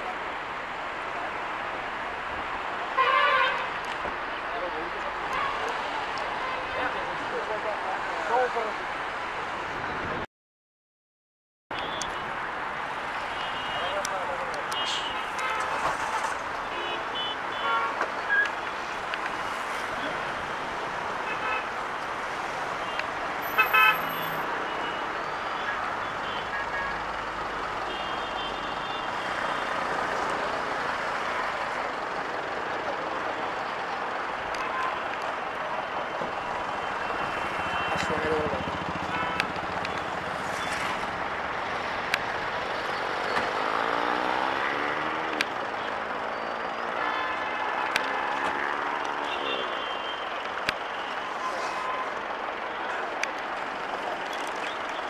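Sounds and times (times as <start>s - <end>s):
heavy highway traffic: 0.0s - 10.3s, 11.7s - 55.0s
vehicle passing: 43.5s - 45.4s.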